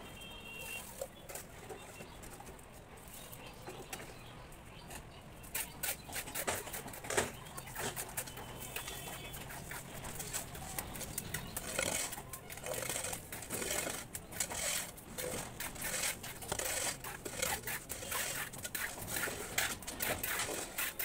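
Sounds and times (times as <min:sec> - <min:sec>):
trowel scraping plaster on wall: 0:05.5 - 0:21.0.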